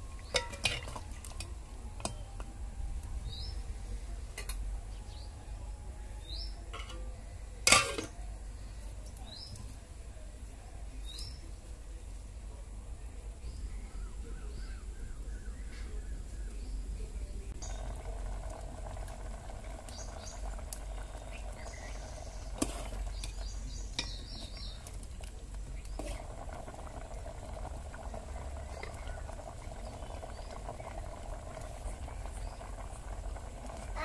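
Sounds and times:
curry bubbling in metal pot: 0.0 - 3.6, 17.5 - 34.0
burning wood crackling: 17.5 - 34.0.

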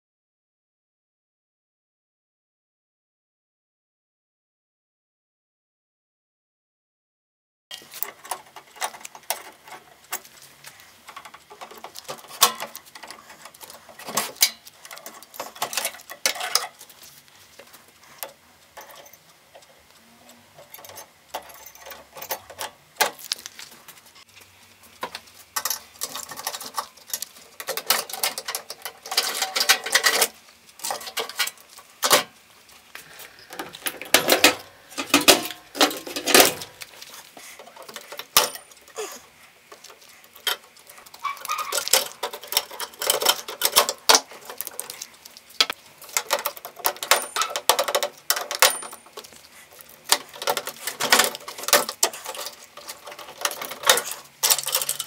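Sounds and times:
metallic clatter: 25.0 - 32.4, 33.2 - 39.0, 40.4 - 55.0.

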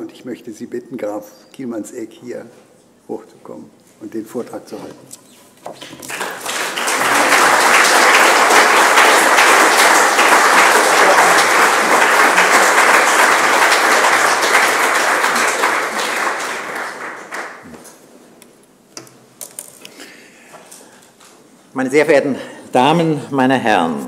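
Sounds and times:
audience applauding: 5.8 - 17.8.

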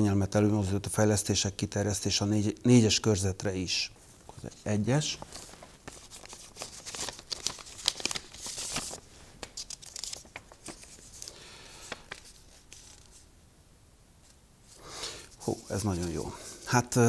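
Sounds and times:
paper rustling: 5.0 - 13.3, 14.2 - 16.8.

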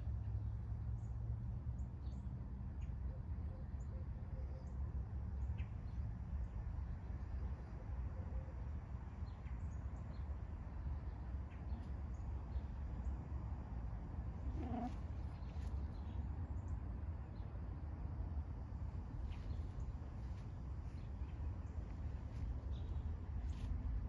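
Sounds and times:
cat meowing: 14.6 - 15.0.

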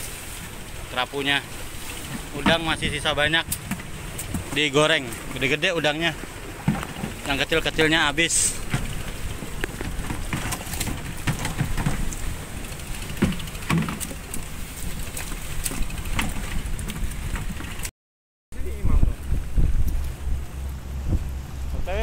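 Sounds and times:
wind rumble on microphone: 1.6 - 5.1, 6.6 - 17.9, 18.5 - 22.0
plastic cooler box handled: 6.6 - 7.4, 9.6 - 12.2.

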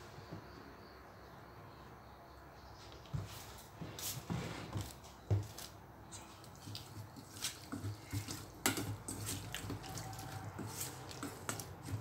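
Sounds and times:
dressing squelching: 5.6 - 12.0
spatula clicking on metal bowl: 7.7 - 12.0.

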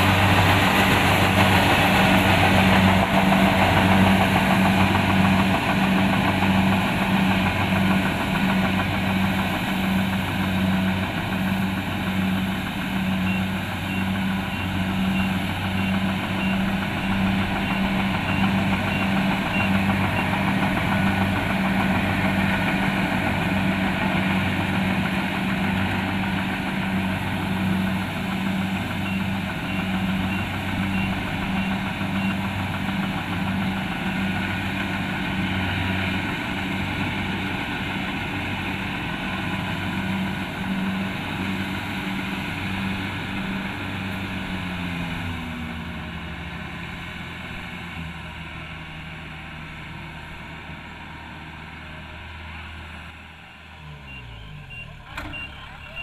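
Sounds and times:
diesel engine running: 0.0 - 56.0
short high beeps: 54.0 - 56.0.

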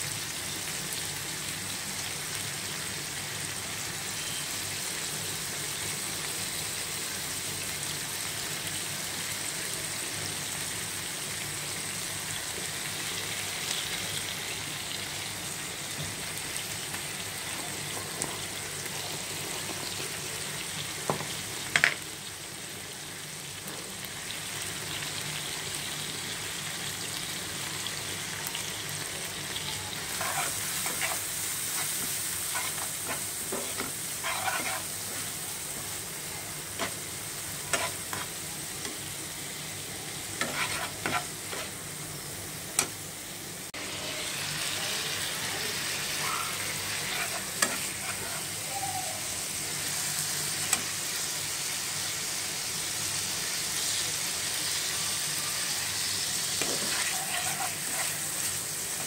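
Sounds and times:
onions sizzling in hot oil: 0.0 - 59.0
stirring scrape in pan: 30.1 - 35.4, 37.6 - 38.4, 40.4 - 41.8, 46.9 - 48.6, 56.6 - 59.0.

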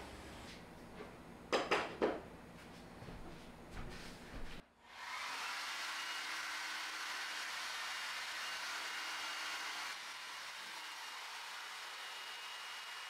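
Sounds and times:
hair dryer blowing: 4.8 - 13.0.

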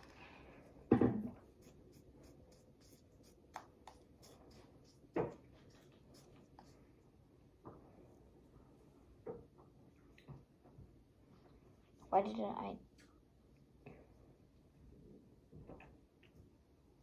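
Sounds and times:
knock: 0.9 - 1.3.

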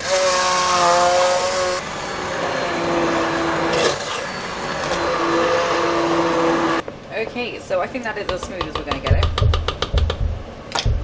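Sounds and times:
electric hand blender whirring: 0.0 - 6.8.

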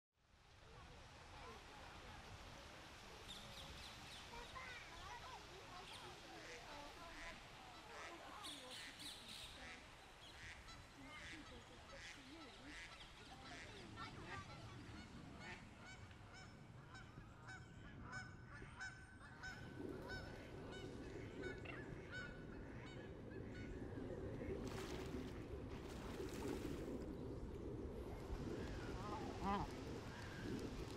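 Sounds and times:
water rushing: 0.5 - 15.0, 24.6 - 30.9.

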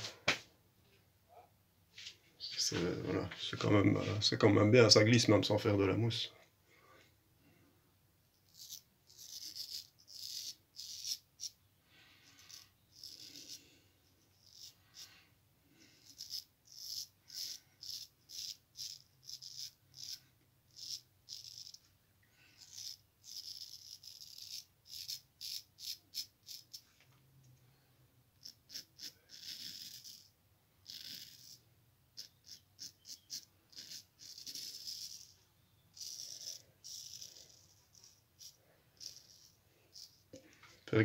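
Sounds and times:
razor scraping stubble: 8.4 - 11.6, 12.2 - 15.2, 15.8 - 21.9, 22.5 - 26.9, 28.4 - 31.6, 32.2 - 40.4.

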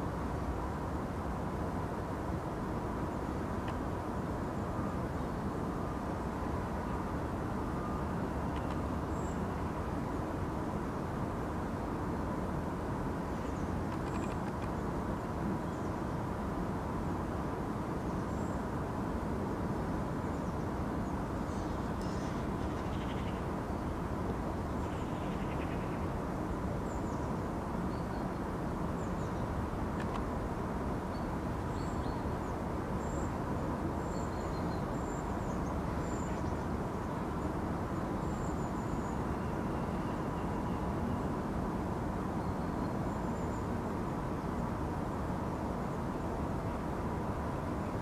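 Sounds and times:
low rush of background noise: 0.0 - 48.0
faint bird chirps: 20.2 - 23.8, 24.7 - 26.1, 26.8 - 28.4, 34.0 - 37.4, 38.0 - 41.3.

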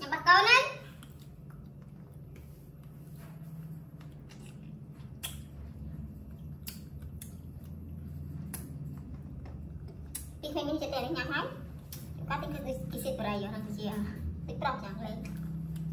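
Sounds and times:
low steady hum: 0.0 - 15.9
hard candy clicking against teeth: 6.5 - 7.8.

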